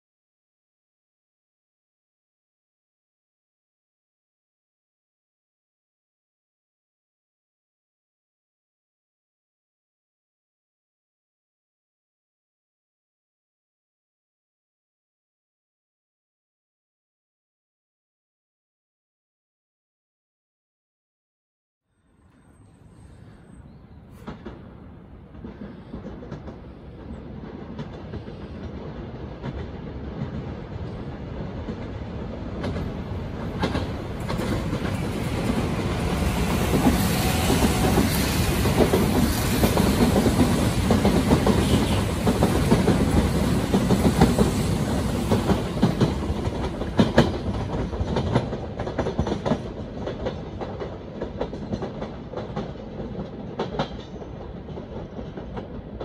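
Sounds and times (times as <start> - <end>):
electric trains rumbling: 22.0 - 56.0
wheels clicking over rail joints: 24.1 - 56.0.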